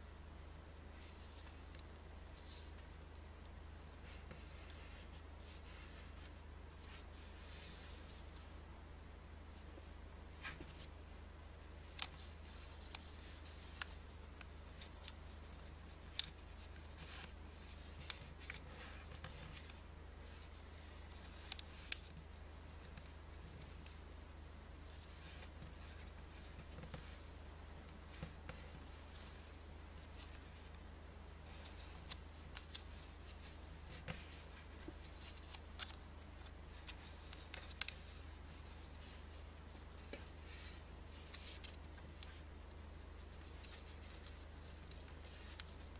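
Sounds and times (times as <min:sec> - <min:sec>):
paper being folded: 0:43.2 - 0:45.9.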